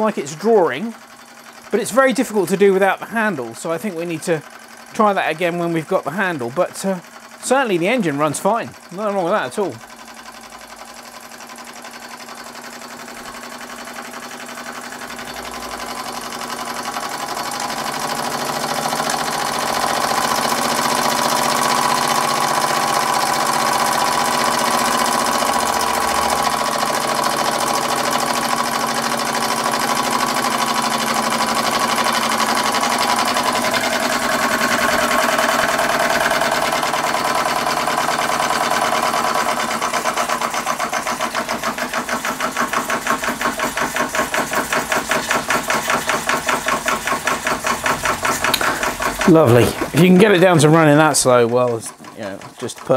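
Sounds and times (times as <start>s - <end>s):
steam engine mechanical beat: 0.0s - 52.9s.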